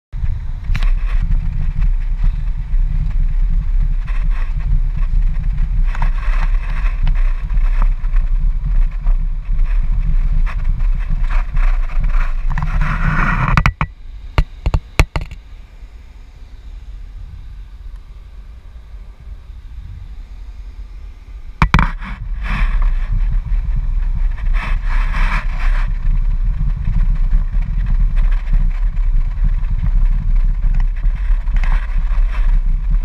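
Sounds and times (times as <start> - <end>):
car engine and tyre rumble: 0.2 - 33.0
faint hum: 0.2 - 33.0
sharp clicks and knocks: 10.4 - 15.4, 21.6 - 22.9.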